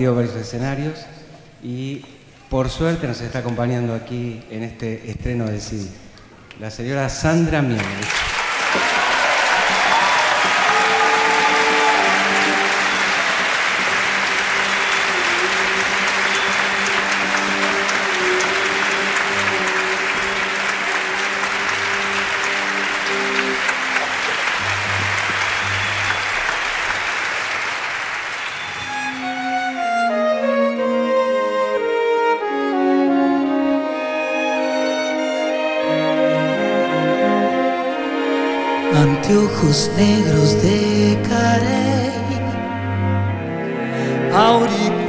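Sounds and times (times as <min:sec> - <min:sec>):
audience applauding: 0:07.6 - 0:29.8
orchestra strings playing: 0:08.8 - 0:45.0.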